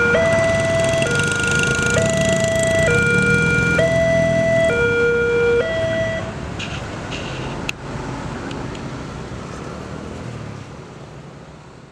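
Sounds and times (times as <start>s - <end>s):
two-tone crossing alarm: 0.0s - 6.3s
road traffic noise: 0.0s - 11.9s.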